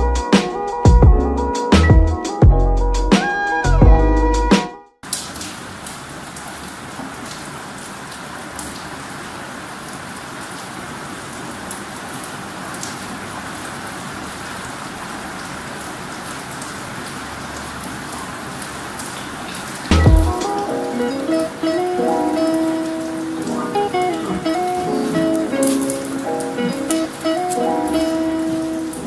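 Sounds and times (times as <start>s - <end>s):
music: 0.0s - 5.0s, 19.9s - 29.0s
raindrop ticks: 5.0s - 8.9s, 12.7s - 13.0s, 16.5s - 21.7s, 22.4s - 29.0s
rain hiss: 5.0s - 29.0s.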